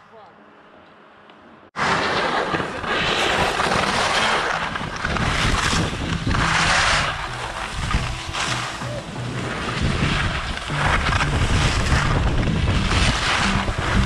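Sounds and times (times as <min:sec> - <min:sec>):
skis scraping over packed snow: 0:01.8 - 0:14.0
wind rushing on microphone: 0:04.6 - 0:14.0.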